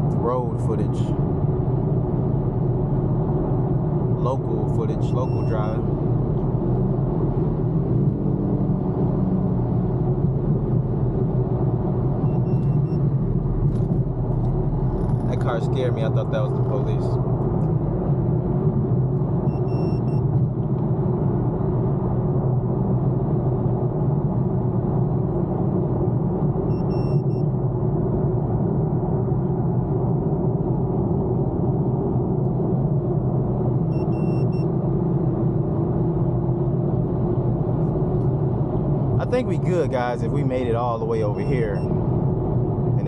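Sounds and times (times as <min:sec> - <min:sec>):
car road and engine drone: 0:00.0 - 0:43.0
short electronic beep: 0:05.2 - 0:05.8, 0:12.2 - 0:13.0, 0:19.5 - 0:20.2, 0:26.7 - 0:27.4, 0:33.9 - 0:34.7.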